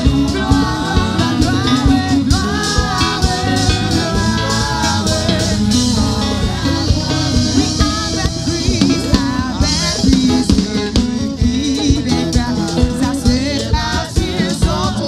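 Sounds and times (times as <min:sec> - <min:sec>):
gospel band playing: 0:00.0 - 0:15.0
woman singing into a microphone: 0:00.0 - 0:15.0.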